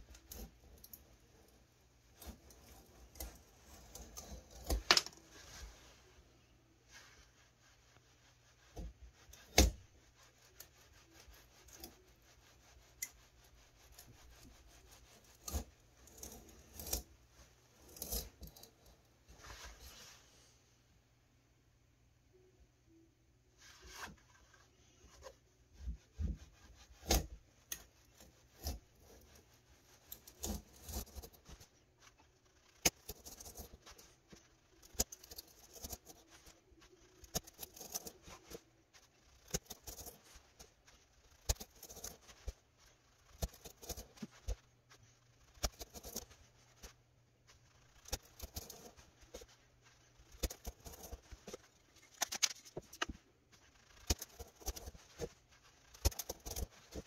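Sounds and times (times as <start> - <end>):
hand file scraping wood: 8.7 - 18.8.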